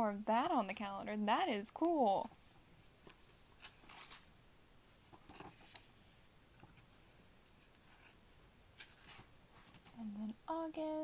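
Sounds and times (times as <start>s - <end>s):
paper pages turning: 3.0s - 4.3s, 4.9s - 8.2s, 8.8s - 9.8s.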